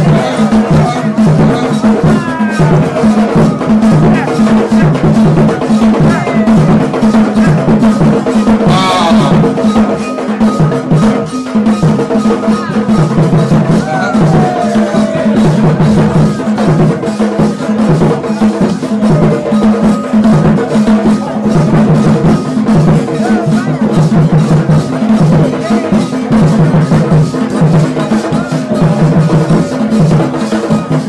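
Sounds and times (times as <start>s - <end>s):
voices calling out: 0.0s - 24.8s
drum-led dance music: 0.0s - 31.0s.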